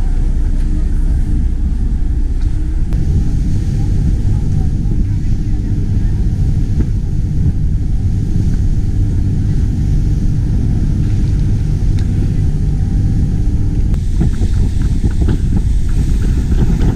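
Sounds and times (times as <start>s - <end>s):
boat engine rumble: 0.0s - 16.9s
water noise: 0.0s - 16.9s
wind buffeting microphone: 0.0s - 16.9s.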